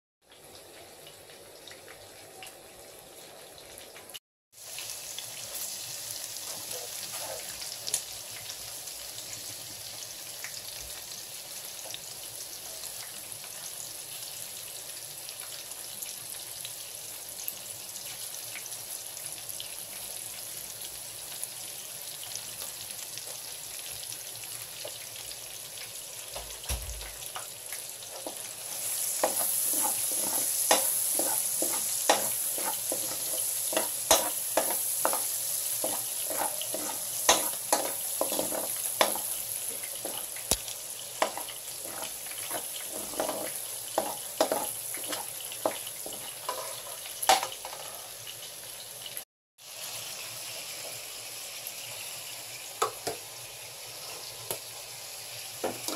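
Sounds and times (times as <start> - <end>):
garlic sizzling in hot oil: 0.2 - 55.9
metal spoon scraping a pan: 6.5 - 7.6, 29.1 - 40.3, 41.2 - 48.2.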